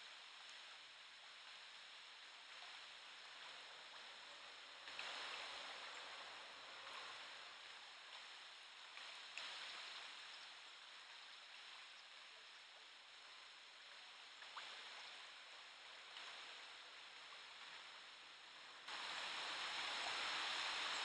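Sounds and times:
river water rippling: 0:00.0 - 0:21.0
small ticks: 0:09.0 - 0:12.6.

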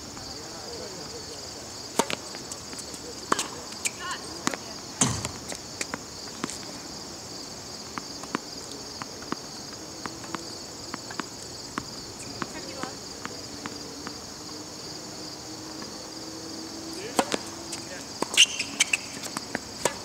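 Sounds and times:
insects trilling: 0:00.0 - 0:20.0
tennis ball hit by racket: 0:02.0 - 0:02.3, 0:03.3 - 0:06.7, 0:07.9 - 0:14.2, 0:17.1 - 0:20.0
tennis ball bouncing: 0:02.0 - 0:07.0, 0:07.8 - 0:14.3, 0:17.1 - 0:20.0
heavy thud: 0:05.0 - 0:05.5.

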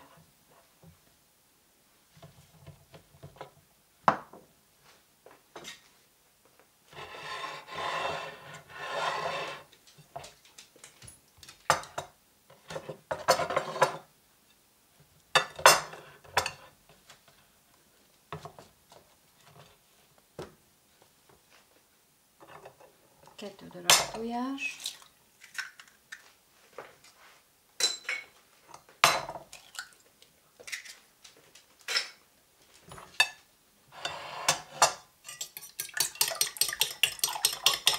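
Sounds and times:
dish sliding on table: 0:06.9 - 0:09.7, 0:33.9 - 0:34.8
dishes clattering: 0:15.4 - 0:16.7, 0:27.8 - 0:29.8, 0:31.9 - 0:32.2, 0:32.9 - 0:37.9
dishes clinking on wooden table: 0:27.8 - 0:29.4.

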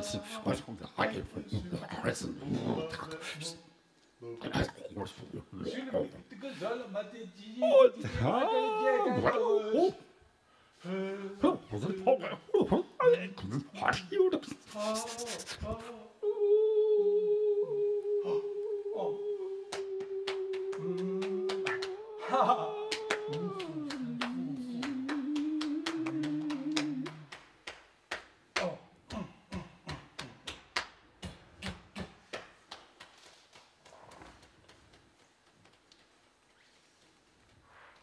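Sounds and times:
man singing a held note: 0:14.7 - 0:27.3.

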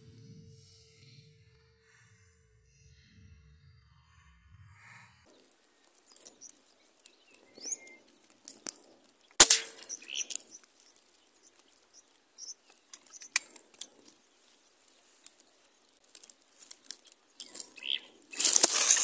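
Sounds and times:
birds chirping: 0:05.2 - 0:19.0
light clicks: 0:05.3 - 0:18.9
loud sharp crack: 0:08.7 - 0:10.9.

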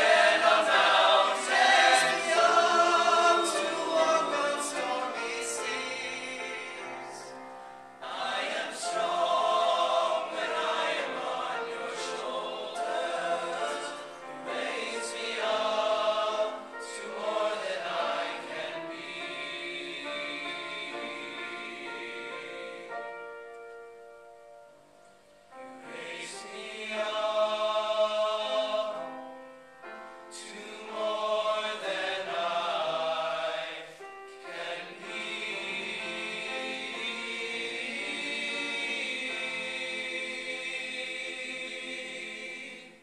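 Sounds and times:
boys' choir singing: 0:00.0 - 0:07.4, 0:08.0 - 0:23.0, 0:25.8 - 0:29.2, 0:30.3 - 0:43.0
grand piano: 0:00.0 - 0:43.0.

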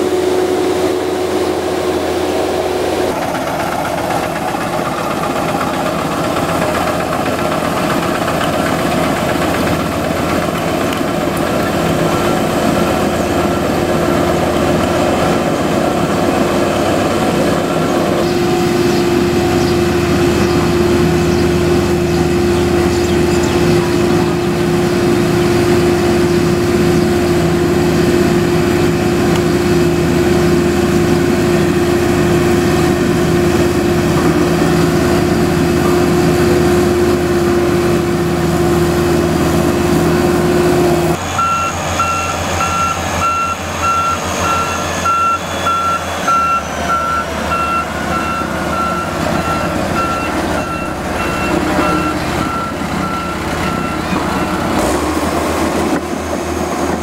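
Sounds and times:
diesel construction machinery running: 0:00.0 - 0:57.0
reversing alarm beeps: 0:41.3 - 0:54.9.

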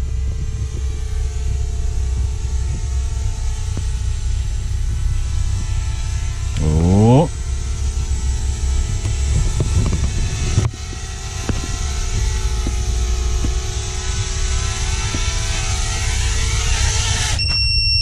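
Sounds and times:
drone motors and propellers hissing: 0:00.1 - 0:17.4
high electronic beep: 0:17.4 - 0:18.0.

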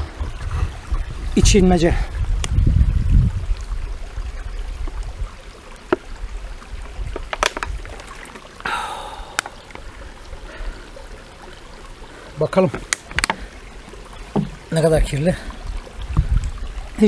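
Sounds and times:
plastic bottle crackling: 0:07.1 - 0:08.4
breathy exhale: 0:08.6 - 0:09.7
man swallowing: 0:08.6 - 0:09.8.

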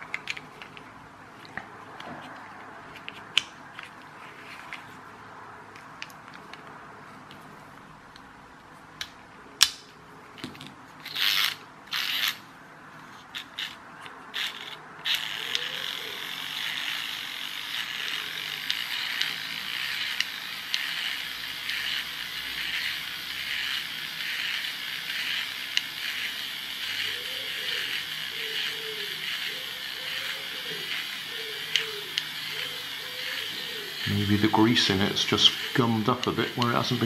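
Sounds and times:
toy car motor whirring: 0:11.0 - 0:37.0.

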